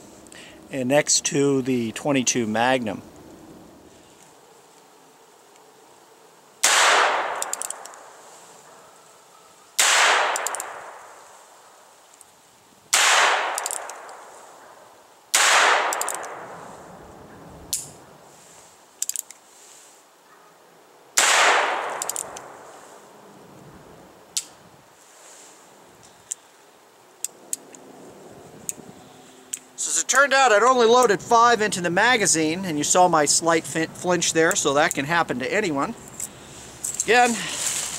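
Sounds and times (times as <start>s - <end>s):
hammer being cocked clicks: 7.4s - 8.0s, 10.4s - 10.7s, 13.5s - 14.2s, 15.9s - 16.4s, 21.9s - 22.4s.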